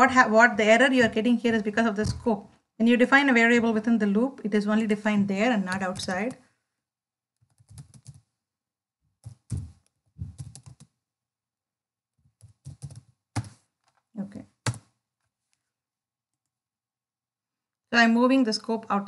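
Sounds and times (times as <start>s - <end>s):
typing on computer keyboard: 5.6s - 6.4s, 7.4s - 8.3s, 9.2s - 11.0s, 12.3s - 14.0s, 14.6s - 14.9s.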